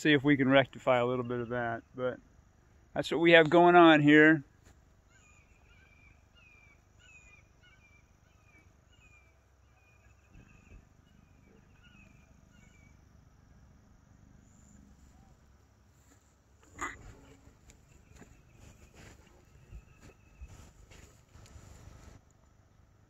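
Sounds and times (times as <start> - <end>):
high chirping animal calls: 5.0 - 13.1, 16.6 - 21.6.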